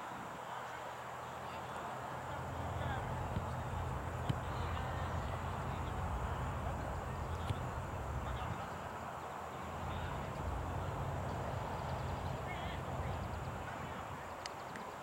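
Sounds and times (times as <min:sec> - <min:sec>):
faint distant voices: 0:00.0 - 0:15.0
low rumble: 0:02.2 - 0:08.9, 0:09.6 - 0:14.2.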